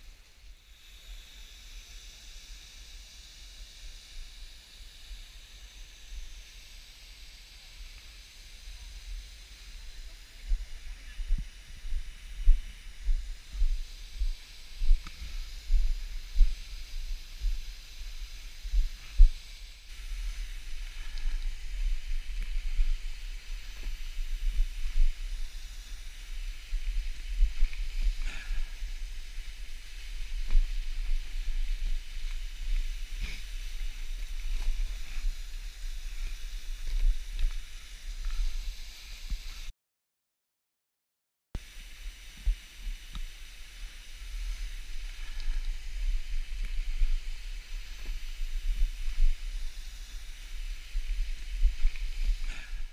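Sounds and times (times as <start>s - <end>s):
steady hiss: 0.0s - 39.7s, 41.6s - 52.9s
footsteps crunching on snow: 10.3s - 38.6s, 43.2s - 52.9s.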